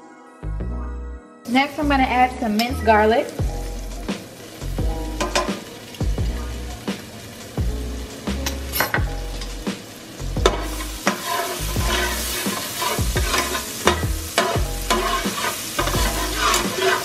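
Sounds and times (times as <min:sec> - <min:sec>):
garlic sizzling in butter: 0:01.5 - 0:17.0
spatula stirring in pan: 0:10.4 - 0:17.0.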